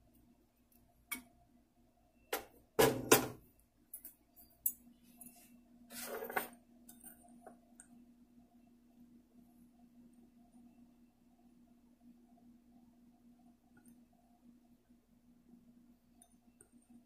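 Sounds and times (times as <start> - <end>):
faint steady hum: 0.0 - 17.0
utensil scrape: 5.3 - 6.6.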